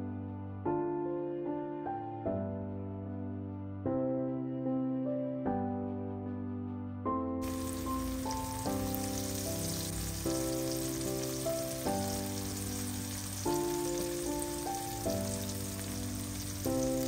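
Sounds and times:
background music of sustained chords: 0:00.0 - 0:17.0
oil sizzling in a pan: 0:07.4 - 0:17.0.

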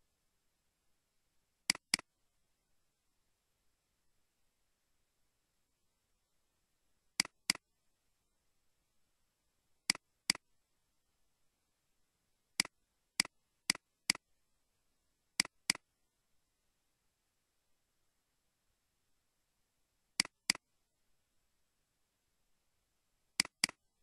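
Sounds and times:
computer mouse clicking: 0:01.7 - 0:02.1, 0:07.2 - 0:07.6, 0:12.6 - 0:14.2, 0:15.4 - 0:15.8, 0:20.2 - 0:20.6, 0:23.4 - 0:23.8.

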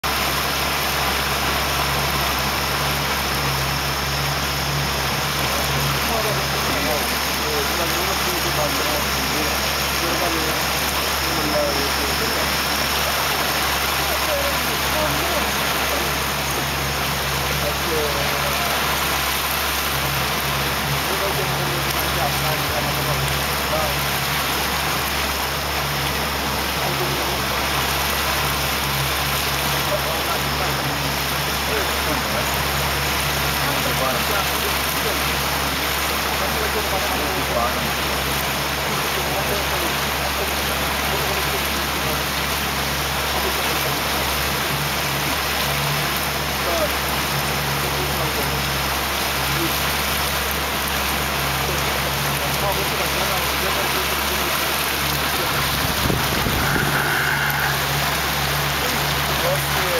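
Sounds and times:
constant hiss: 0:00.0 - 0:59.9
motorboat engine droning: 0:00.0 - 0:59.9
water rushing past boat: 0:00.0 - 0:59.9
low hum: 0:49.1 - 0:59.9.

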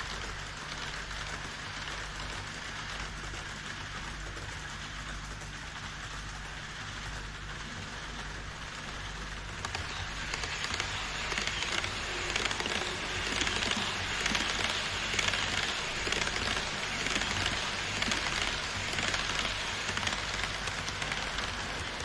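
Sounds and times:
model train wheels clicking on track: 0:00.0 - 0:22.0
steady low hum: 0:00.0 - 0:22.0.

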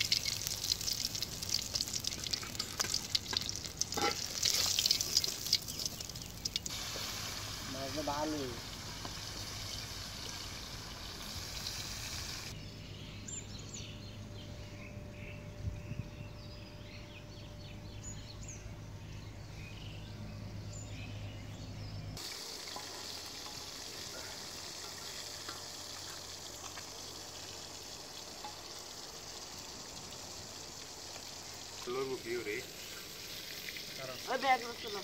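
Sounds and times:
fish sizzling in hot oil: 0:00.0 - 0:12.5, 0:22.2 - 0:35.0
small birds chirping: 0:00.0 - 0:35.0.

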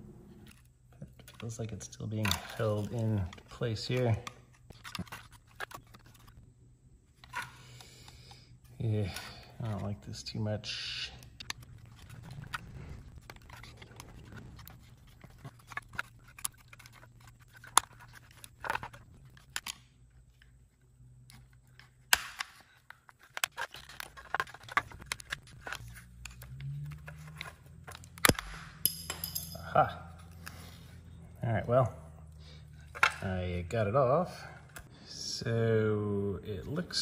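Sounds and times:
plastic housing clicks and scrapes: 0:00.3 - 0:06.4, 0:11.2 - 0:20.6, 0:21.2 - 0:28.6.

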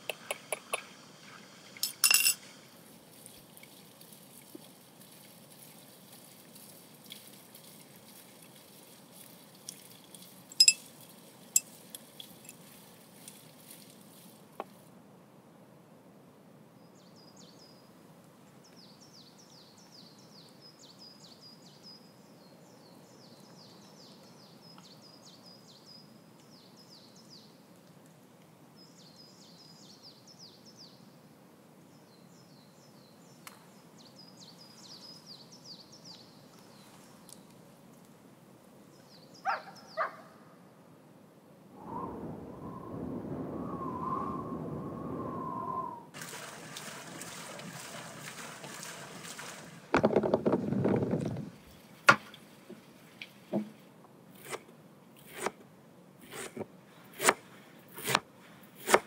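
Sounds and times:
faint background noise: 0:00.0 - 0:59.0
teaspoon clinking on glass: 0:01.8 - 0:02.4, 0:10.6 - 0:10.9
songbird chirping: 0:16.8 - 0:28.0, 0:28.8 - 0:37.7, 0:38.8 - 0:40.5.

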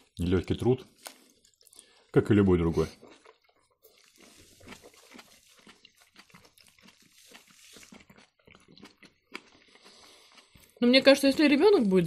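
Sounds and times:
people chewing food: 0:00.0 - 0:12.0.

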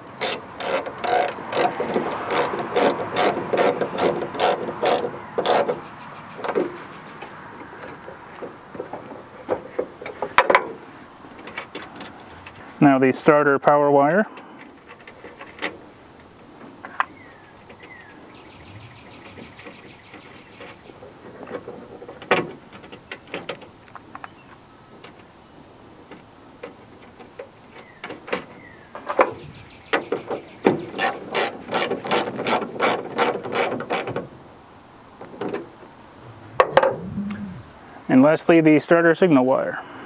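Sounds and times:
socket ratchet clicking: 0:00.1 - 0:05.8.

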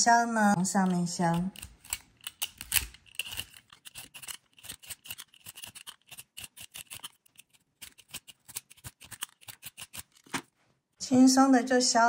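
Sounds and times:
peeler scraping vegetable peel: 0:00.6 - 0:10.4.

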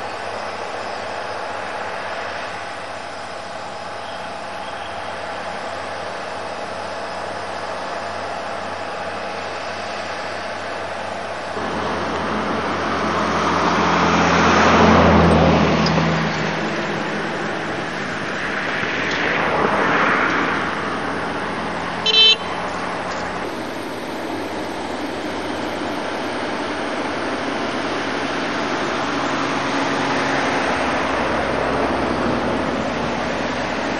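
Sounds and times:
vehicles passing: 0:00.0 - 0:33.9
car horn toot: 0:22.0 - 0:22.7.

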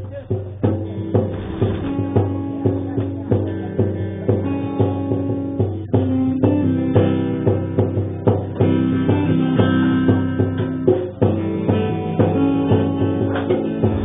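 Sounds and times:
hand drum beat: 0:00.0 - 0:14.0
strummed acoustic guitar: 0:00.0 - 0:14.0.

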